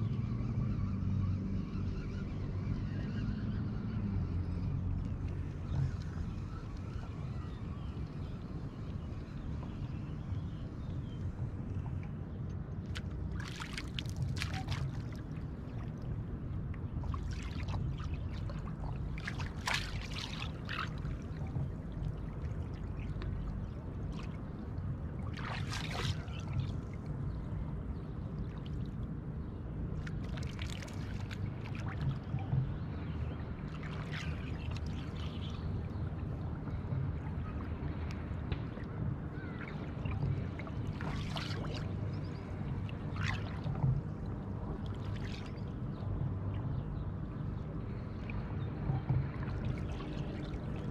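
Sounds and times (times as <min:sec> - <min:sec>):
steady low rumble: 0:00.0 - 0:50.9
water splashing: 0:12.8 - 0:16.4, 0:17.0 - 0:27.1, 0:29.9 - 0:46.7.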